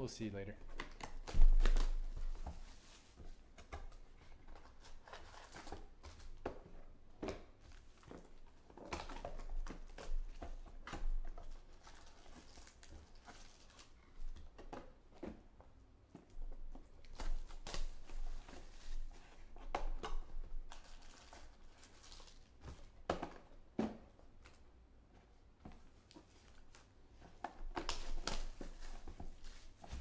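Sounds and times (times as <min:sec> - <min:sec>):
plastic wrapping crinkling and tearing: 0:00.7 - 0:03.0, 0:04.4 - 0:06.4, 0:11.2 - 0:14.6, 0:17.0 - 0:22.6, 0:27.7 - 0:30.0
foil packs rustling: 0:20.7 - 0:22.6.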